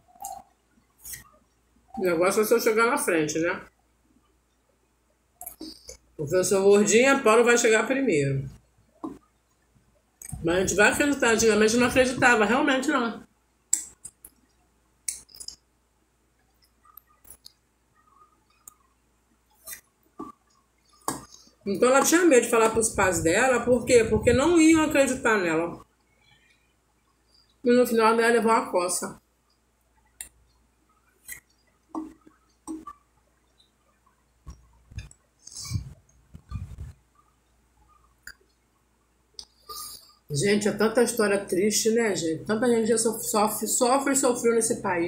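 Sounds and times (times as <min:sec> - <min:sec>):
chewing and mouth clicks: 0:05.4 - 0:06.0, 0:13.7 - 0:15.6, 0:16.5 - 0:18.9.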